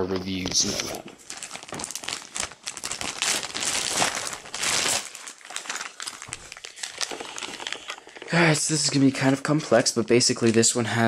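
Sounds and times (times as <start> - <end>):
plastic bag crinkling: 0.3 - 9.6.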